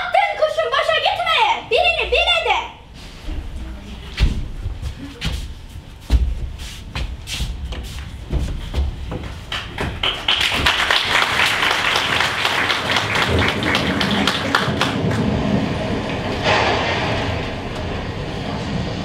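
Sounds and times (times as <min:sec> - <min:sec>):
audience applauding: 0:09.5 - 0:15.6.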